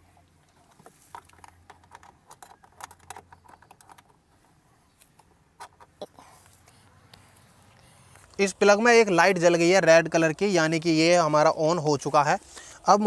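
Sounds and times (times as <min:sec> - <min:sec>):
plug and cord rustling: 0:00.4 - 0:04.3.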